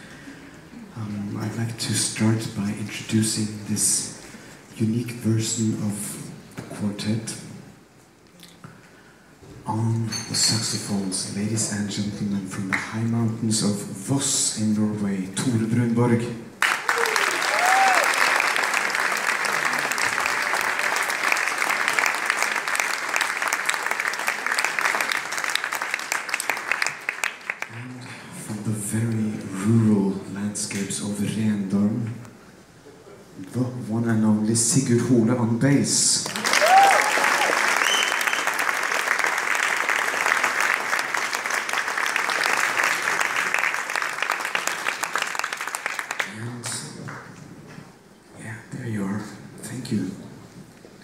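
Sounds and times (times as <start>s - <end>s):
audience applauding: 16.6s - 27.8s, 36.2s - 47.3s.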